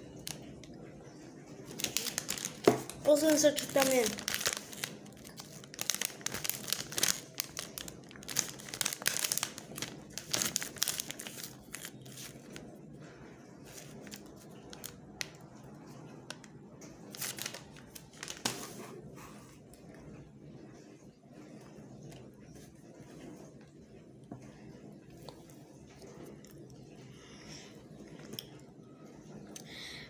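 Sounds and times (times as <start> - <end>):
wrapper crinkling and tearing: 1.7 - 12.6, 13.7 - 15.4, 17.1 - 18.7.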